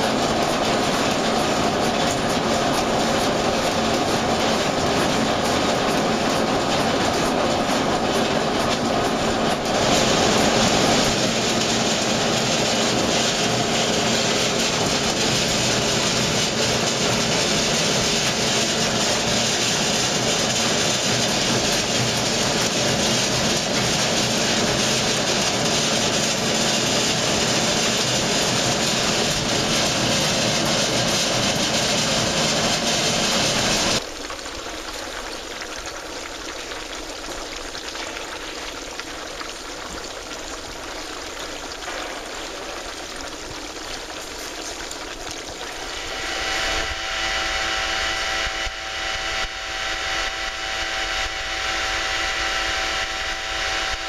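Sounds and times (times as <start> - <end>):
machine running loudly: 0.0 - 34.0, 45.4 - 54.0
water spraying: 0.0 - 34.8, 36.9 - 53.9
motor hum: 45.4 - 54.0.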